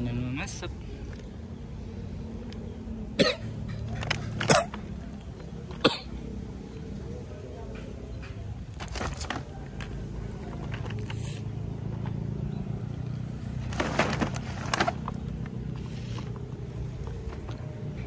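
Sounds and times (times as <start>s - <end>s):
plastic packaging rustling and crackling: 3.8s - 5.0s, 8.7s - 11.4s, 13.6s - 17.6s.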